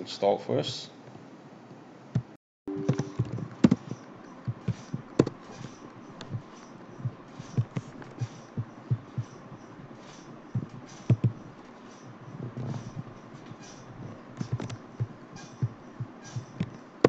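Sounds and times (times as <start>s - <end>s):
low steady tone: 2.7s - 3.5s.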